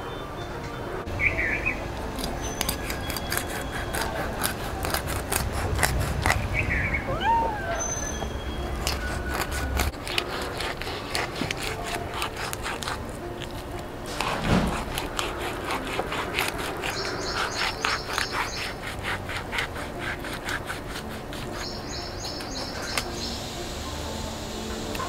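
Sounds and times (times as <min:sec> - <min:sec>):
bird chirping: 0:00.0 - 0:04.1, 0:06.4 - 0:09.5, 0:16.8 - 0:18.9, 0:21.6 - 0:23.6
knife scraping fish: 0:02.1 - 0:06.6, 0:08.6 - 0:23.1
thump on chopping block: 0:14.4 - 0:14.8.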